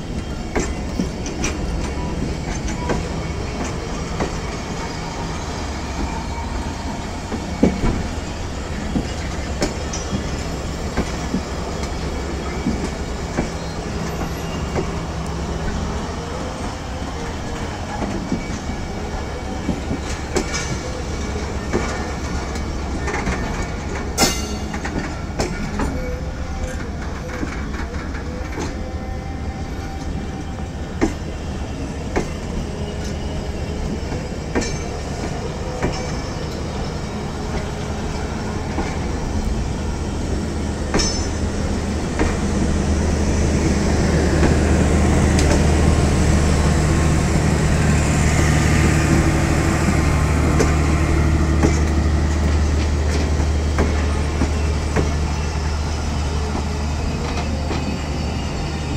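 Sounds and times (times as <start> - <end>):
train rumbling on rails: 0.0 - 58.9
wheels clacking over rail joints: 16.6 - 28.9, 33.8 - 58.0.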